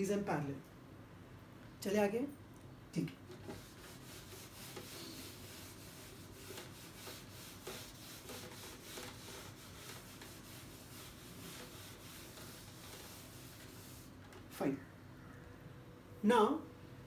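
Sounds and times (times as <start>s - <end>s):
eraser rubbing on whiteboard: 3.4s - 14.4s.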